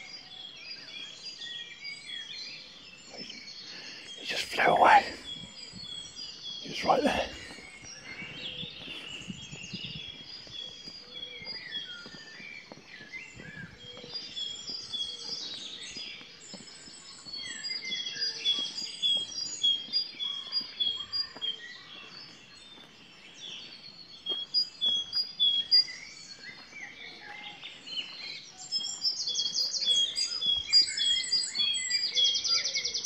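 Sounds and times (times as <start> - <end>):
songbirds singing: 0.0 - 33.0
great tit repeating phrase: 4.2 - 5.4, 6.6 - 7.5.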